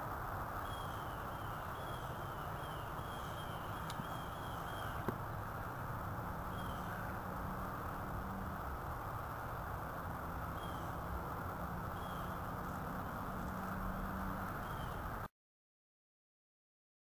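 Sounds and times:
outdoor background noise: 0.0 - 15.3
bird chirping: 0.6 - 5.5, 6.4 - 8.2, 10.4 - 11.1, 11.8 - 15.1.

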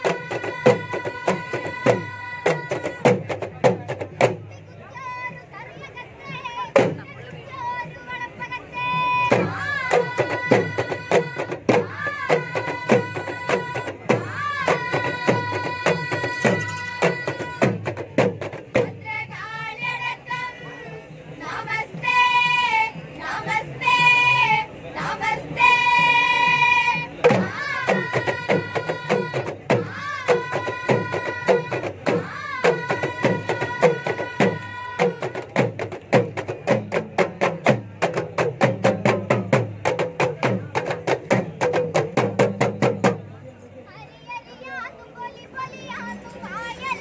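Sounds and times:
girls singing in unison: 0.0 - 3.3, 7.6 - 18.0, 18.7 - 35.7.

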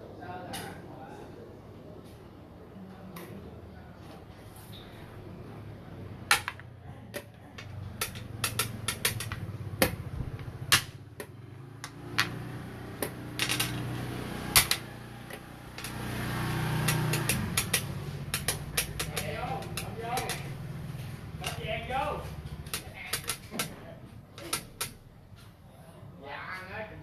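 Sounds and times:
game pieces clacking on wooden board: 7.2 - 12.4, 13.0 - 14.0, 14.6 - 16.0, 16.8 - 20.6, 21.4 - 21.7, 22.6 - 23.8, 24.4 - 25.0.

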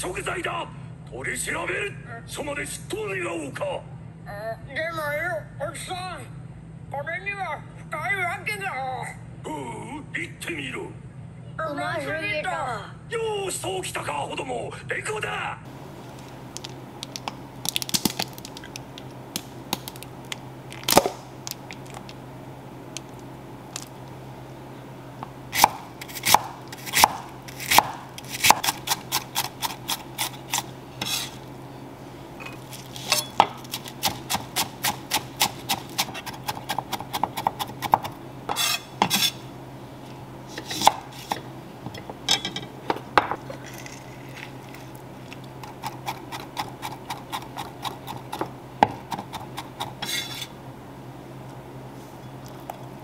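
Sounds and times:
low steady hum: 15.5 - 53.0
knife chopping on wooden board: 25.5 - 31.4, 33.1 - 39.4, 40.6 - 41.4, 45.6 - 50.5.

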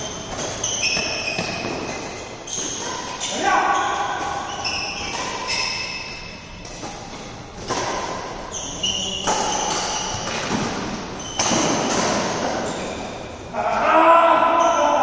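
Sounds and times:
short high squeaks: 0.0 - 6.9, 8.4 - 11.9
racket striking shuttlecock: 0.1 - 3.1, 4.1 - 12.5.

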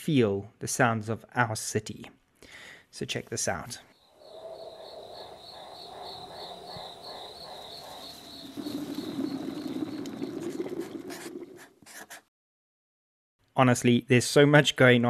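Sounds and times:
high pulsing chirp: 4.0 - 10.6
birds: 4.0 - 11.1.

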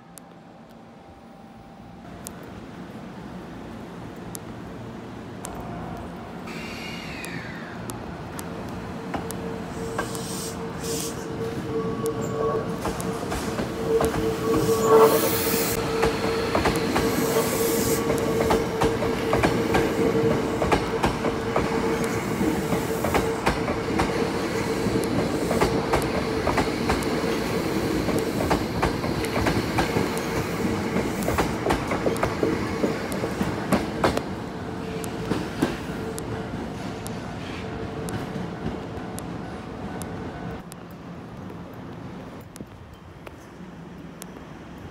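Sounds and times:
electric train whine: 0.0 - 44.9
train wheels clacking over rail joints: 12.8 - 34.3.

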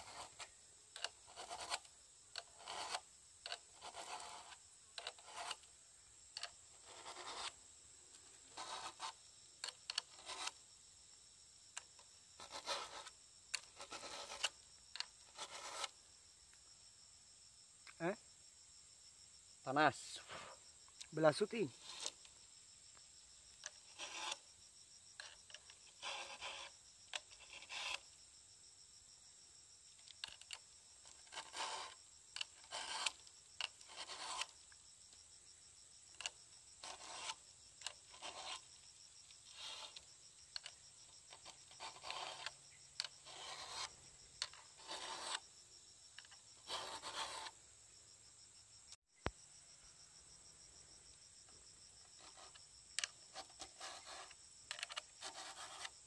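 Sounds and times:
file rasping on chainsaw chain: 0.0 - 5.7, 6.4 - 7.6, 8.5 - 10.6, 12.4 - 15.9, 23.6 - 24.4, 25.2 - 28.0, 30.3 - 34.6, 36.2 - 38.7, 39.4 - 40.0, 41.3 - 45.4, 46.6 - 47.6, 52.2 - 56.0.

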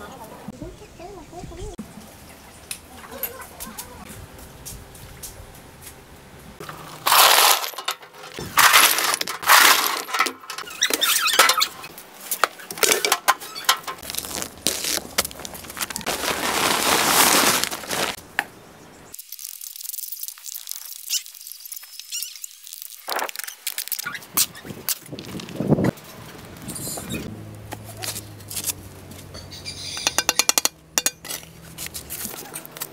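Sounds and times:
scraping cement and sand: 6.6 - 18.2
paper bag being cut open: 7.0 - 7.8, 14.0 - 18.2.

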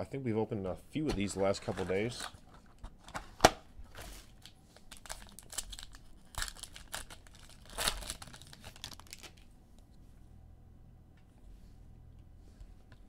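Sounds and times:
wrapper tearing and crinkling: 4.3 - 9.5.

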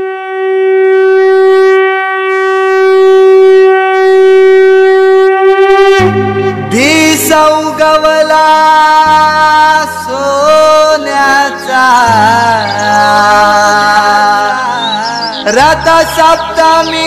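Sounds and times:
wind instrument melody: 0.0 - 17.0
low steady drone: 5.8 - 7.9.

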